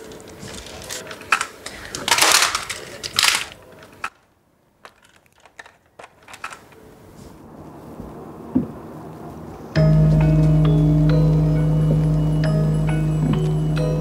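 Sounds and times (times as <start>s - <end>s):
plastic toy guns rustling clatter: 0.0s - 7.0s.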